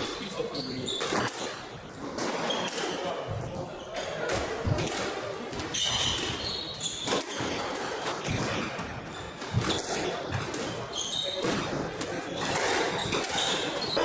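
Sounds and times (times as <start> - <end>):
squash ball smacking: 1.0 - 14.0
shoes squeaking on wooden floor: 5.5 - 14.0.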